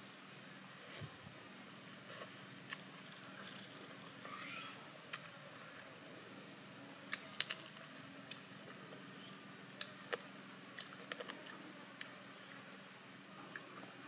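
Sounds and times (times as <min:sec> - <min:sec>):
faint steady hum: 0:00.0 - 0:14.0
person chewing and lip smacking: 0:07.1 - 0:08.5, 0:10.8 - 0:12.2.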